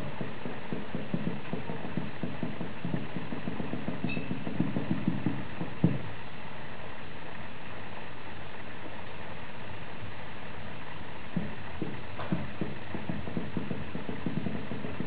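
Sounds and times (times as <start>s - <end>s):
louder knock: 0.0s - 6.1s, 11.3s - 15.0s.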